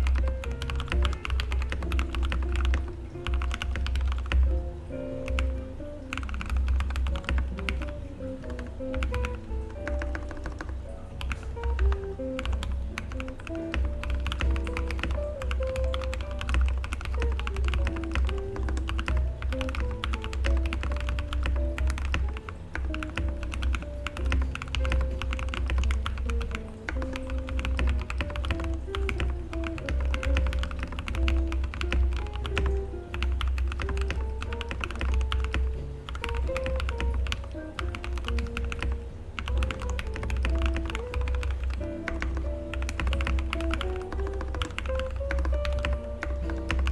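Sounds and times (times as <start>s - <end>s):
fast typing on mechanical keyboard: 0.0s - 4.6s, 5.2s - 46.9s.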